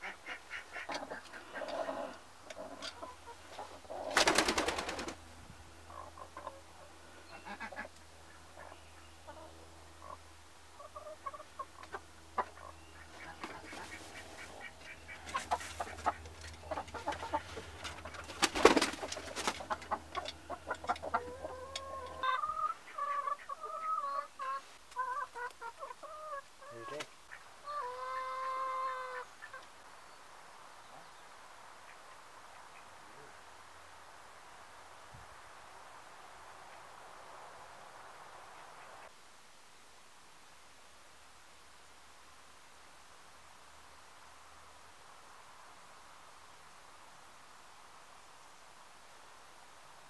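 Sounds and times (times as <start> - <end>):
hen long drawn-out call: 0.0 - 4.1, 5.9 - 17.7, 20.5 - 29.8
hens clucking: 0.0 - 5.2, 5.8 - 29.8.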